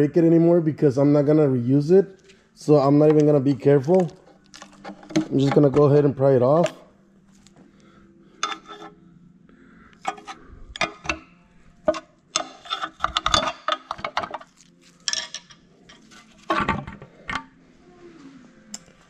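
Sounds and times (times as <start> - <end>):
screwdriver prying metal cover: 11.8 - 14.6.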